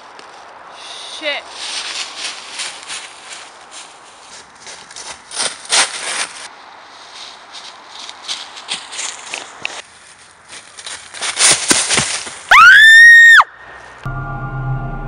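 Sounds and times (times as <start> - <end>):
footsteps crunching dry leaves: 0.0 - 12.6.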